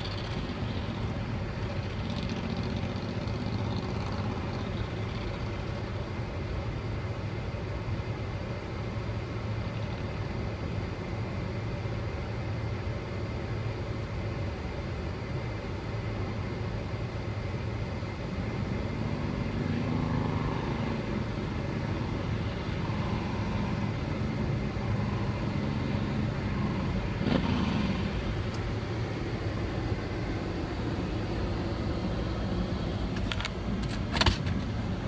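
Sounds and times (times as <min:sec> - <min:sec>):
motorcycle engine running: 0:00.0 - 0:06.2, 0:18.4 - 0:34.6.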